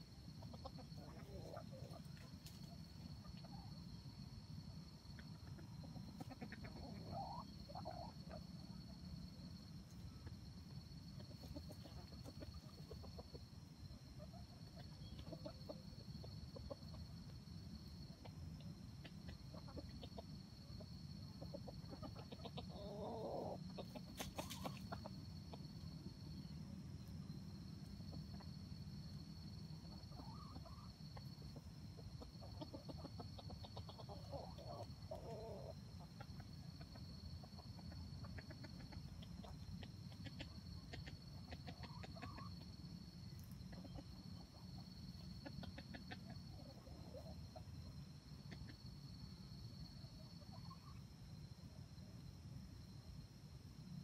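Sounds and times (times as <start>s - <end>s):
chicken clucking softly: 0.0s - 51.9s.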